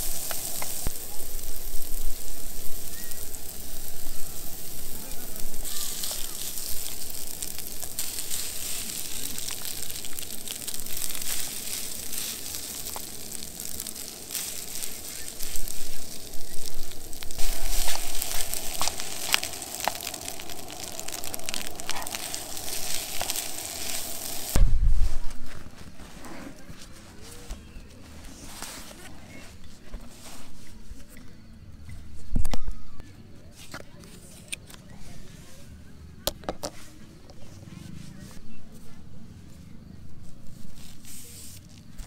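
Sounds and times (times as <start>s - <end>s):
rice sizzling in frying pan: 0.0s - 26.1s, 40.4s - 42.0s.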